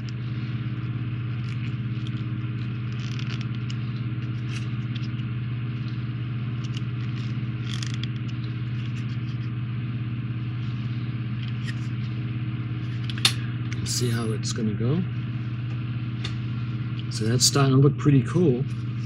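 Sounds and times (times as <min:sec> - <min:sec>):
low machine hum: 0:00.0 - 0:19.0
screwdriver and plastic parts clicking: 0:06.6 - 0:08.2.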